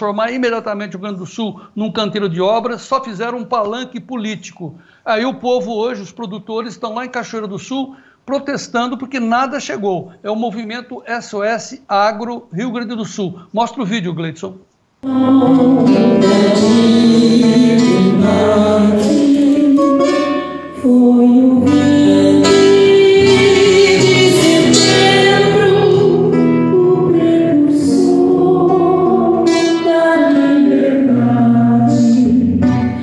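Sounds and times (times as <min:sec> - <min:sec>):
crowd singing: 0:15.0 - 0:33.0
instrumental accompaniment: 0:15.0 - 0:33.0.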